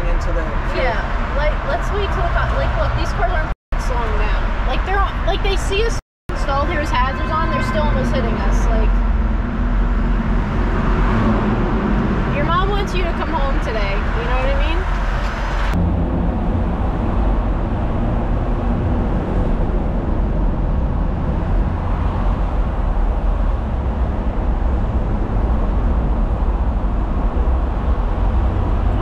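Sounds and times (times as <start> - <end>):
highway traffic rumble: 0.0 - 29.0.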